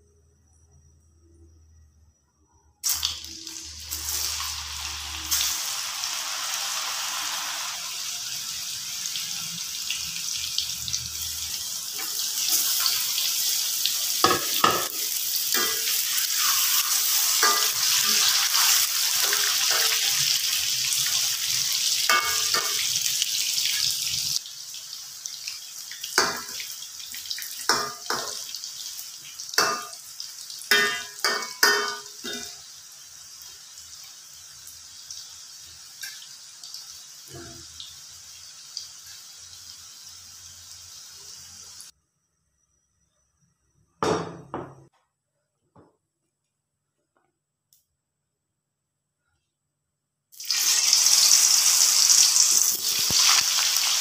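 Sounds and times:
food deep-frying in oil: 2.8 - 41.9, 50.3 - 54.0
metal spatula scraping wok: 15.6 - 20.2
spoon knocking against wok: 30.7 - 32.5.

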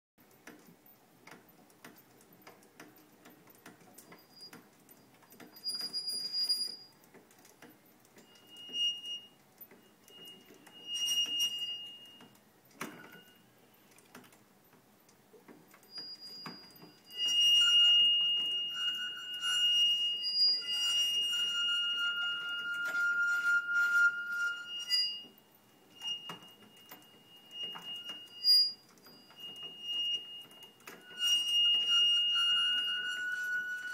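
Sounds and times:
light mechanical clicks: 0.2 - 8.7
high steady-pitched squealing: 8.2 - 13.5, 15.9 - 33.9.

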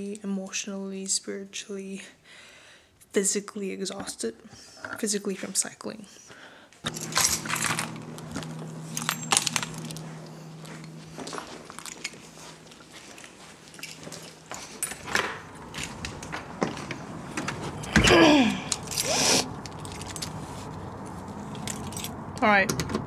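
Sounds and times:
keys jangling and clicking: 6.9 - 18.0, 18.6 - 20.5, 21.4 - 22.2.

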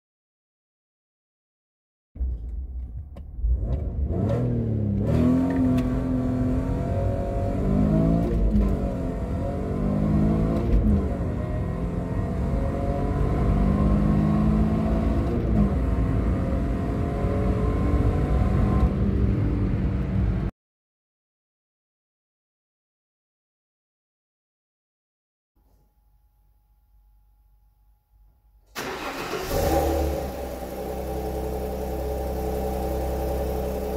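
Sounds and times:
car engine accelerating hard: 3.4 - 20.5, 28.8 - 33.9.

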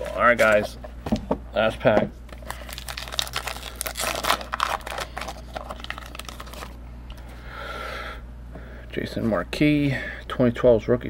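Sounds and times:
card pack wrapper crinkling and tearing: 2.3 - 6.8.

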